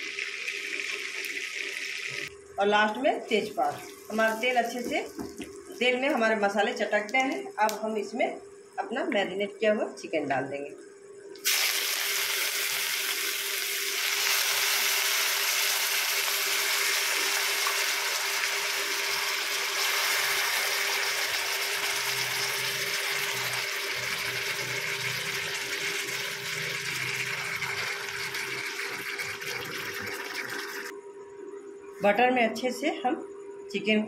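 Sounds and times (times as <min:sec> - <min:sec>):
faint steady hum: 0:00.0 - 0:34.0
chicken sizzling in butter: 0:11.4 - 0:30.9.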